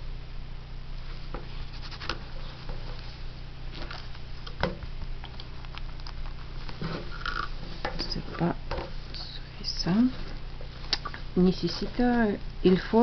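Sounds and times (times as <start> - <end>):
steady low hum: 0.0 - 13.0
fabric rustling: 9.7 - 13.0.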